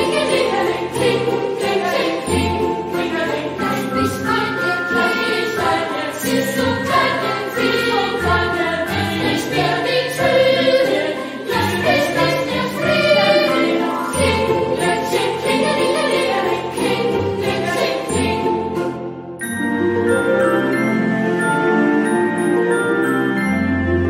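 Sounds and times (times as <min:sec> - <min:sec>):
choir singing held notes: 0:00.0 - 0:19.1.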